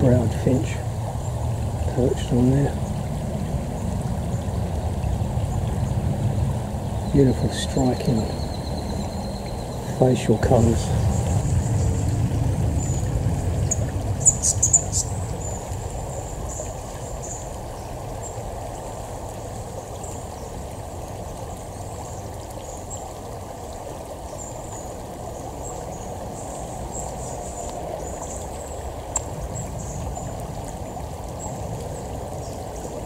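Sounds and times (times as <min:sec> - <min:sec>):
creek water trickling over rocks: 0:00.0 - 0:33.0
small birds chirping: 0:03.7 - 0:18.5, 0:24.3 - 0:33.0.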